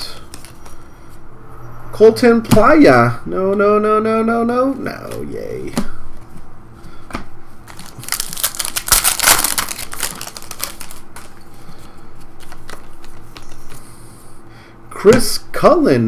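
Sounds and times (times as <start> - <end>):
cards and packaging rustling: 0.0 - 0.9, 7.6 - 14.0.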